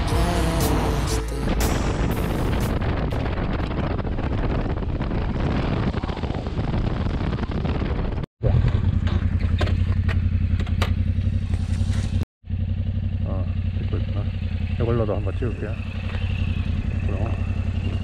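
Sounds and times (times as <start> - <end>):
wind and road noise: 0.0 - 18.0
motorcycle engine thumping: 8.6 - 18.0.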